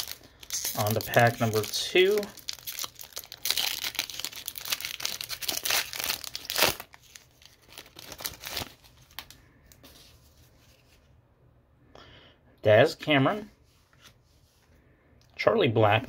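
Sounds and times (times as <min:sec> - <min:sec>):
foil wrapper crinkling: 0:00.0 - 0:09.4
cards rustling: 0:00.0 - 0:11.1.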